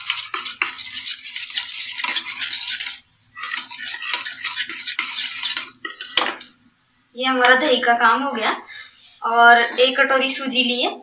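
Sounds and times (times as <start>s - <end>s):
whisk swishing in bowl: 0.0s - 6.2s.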